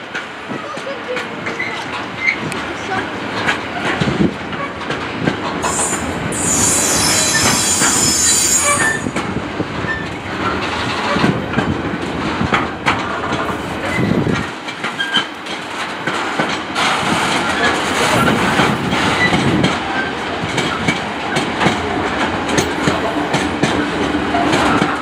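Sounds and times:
freight train wheels clicking: 0.0 - 25.0
high-pitched wheel squeal: 5.6 - 9.2.

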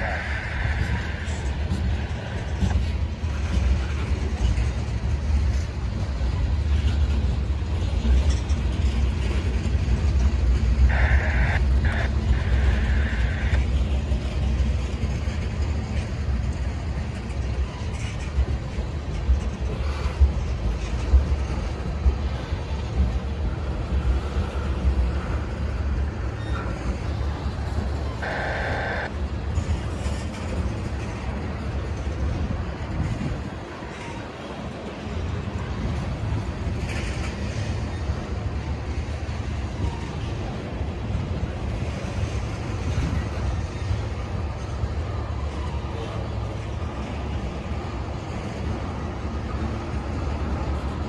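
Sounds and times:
train wheels rumbling on rails: 0.0 - 51.0
high squeal of wheels: 26.2 - 27.2.

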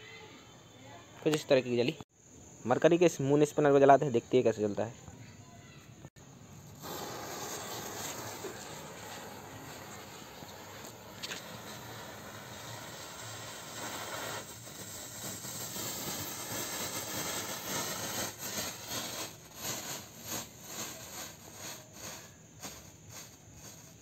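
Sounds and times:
ground firework fizzing: 6.2 - 24.0.

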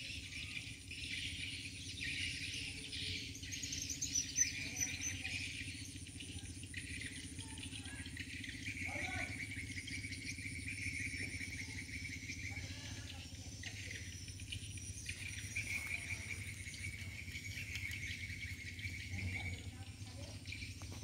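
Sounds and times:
insects trilling: 0.0 - 21.0
steady low hum: 0.0 - 21.0.

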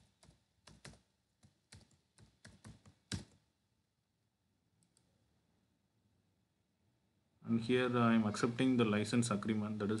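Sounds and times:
computer keyboard typing: 0.0 - 3.4.

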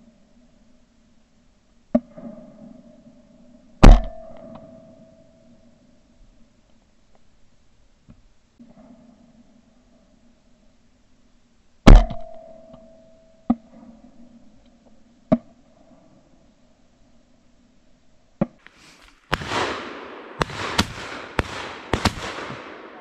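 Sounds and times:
shotgun shots echoing: 18.8 - 23.0.

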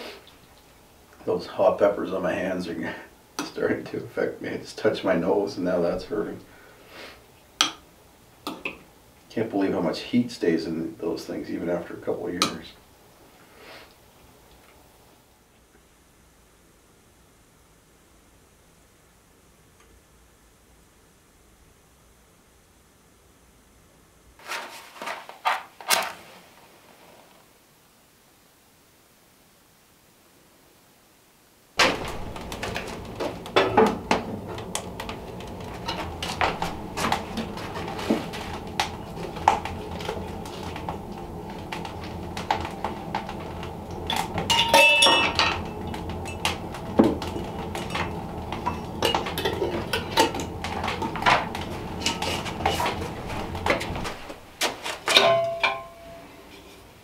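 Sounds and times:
steady low hum: 31.8 - 54.6
pots and pans clattering: 31.8 - 56.8
pan knocking and ringing: 44.1 - 46.5, 55.1 - 56.3.

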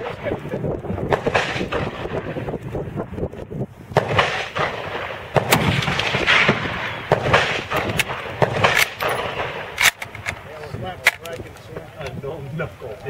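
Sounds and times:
rifle gunshots: 1.1 - 2.4, 3.9 - 11.4.

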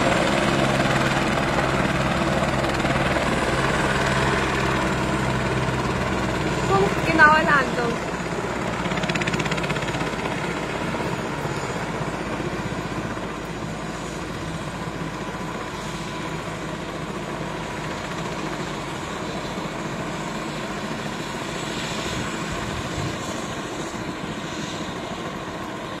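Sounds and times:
helicopter rotor beating: 0.0 - 26.0.

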